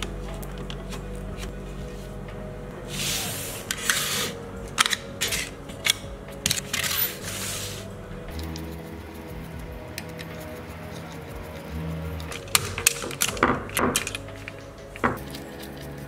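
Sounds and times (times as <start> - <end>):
background music: 0.0 - 16.0
plastic parts scraping and sliding: 2.9 - 8.7
plastic parts clicking and knocking: 12.2 - 15.8.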